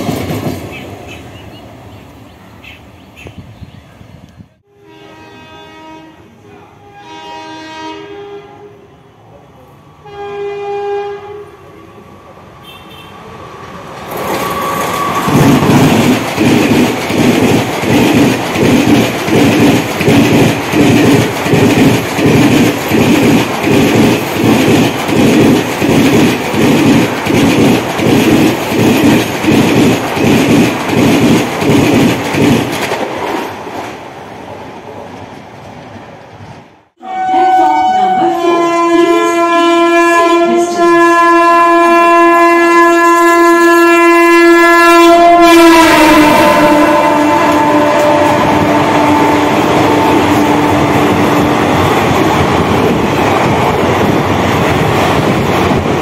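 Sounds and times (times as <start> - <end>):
train rushing past: 0.0 - 4.3, 8.9 - 40.2, 43.3 - 56.0
locomotive horn chord: 4.6 - 8.8, 10.0 - 11.6, 37.0 - 51.2
electric train horn: 4.6 - 9.1, 10.0 - 11.6, 12.6 - 13.2, 37.0 - 51.7.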